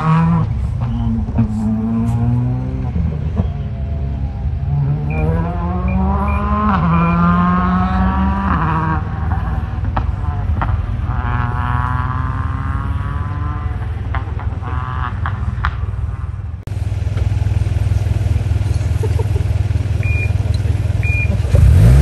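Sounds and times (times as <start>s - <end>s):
rally car engine at full throttle: 0.0s - 22.0s.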